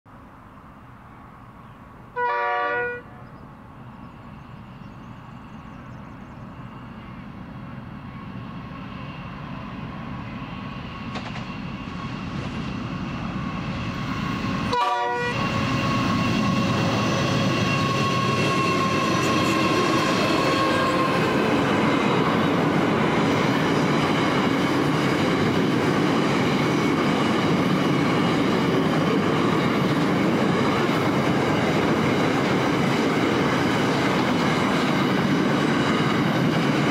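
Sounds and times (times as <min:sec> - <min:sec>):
diesel locomotives: 0:00.1 - 0:36.9
train horn blast: 0:02.2 - 0:03.2, 0:14.6 - 0:21.5.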